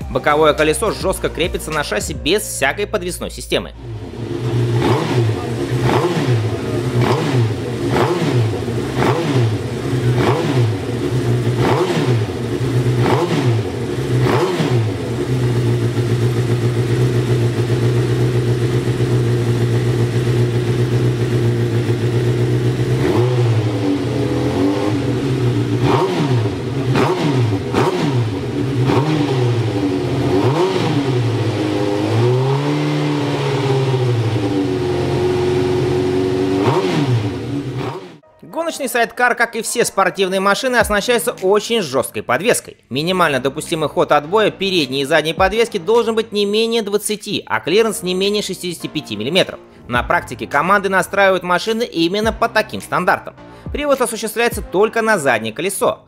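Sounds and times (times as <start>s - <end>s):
racing engine revving: 3.8s - 38.2s.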